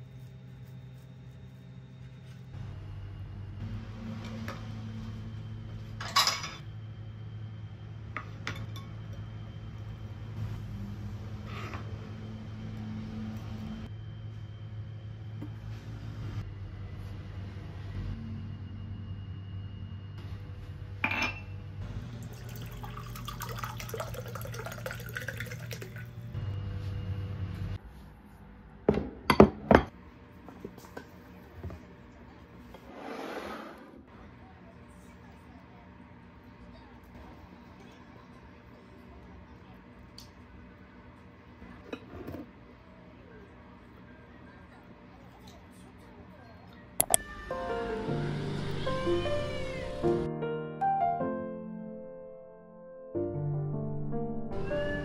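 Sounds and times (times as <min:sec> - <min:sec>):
glass and crockery clinking: 0:21.0 - 0:21.5
water pouring into a glass mug: 0:22.1 - 0:26.3.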